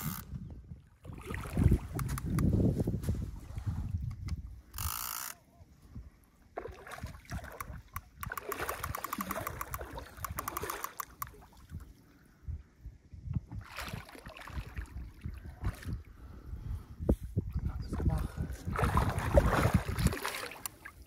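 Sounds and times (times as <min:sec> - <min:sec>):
fishing reel clicking: 0:00.0 - 0:00.3, 0:04.7 - 0:05.4, 0:07.6 - 0:11.3
fish splashing: 0:06.6 - 0:11.5.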